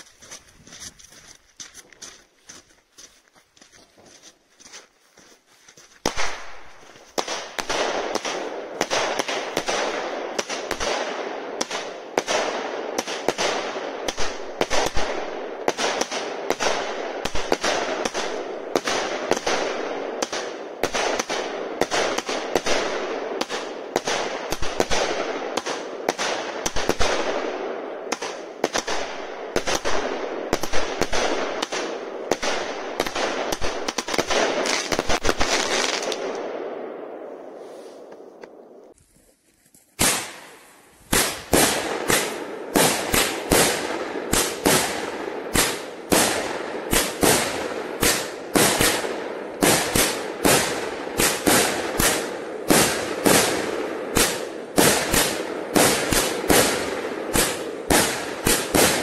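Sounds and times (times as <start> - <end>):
fireworks bangs: 6.0 - 38.9, 40.0 - 59.0
fireworks crackle and hiss: 28.1 - 36.3, 37.5 - 38.2, 39.7 - 59.0.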